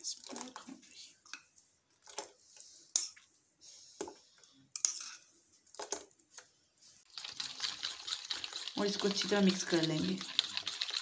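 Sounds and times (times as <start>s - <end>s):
liquid pouring and splashing: 7.1s - 11.0s.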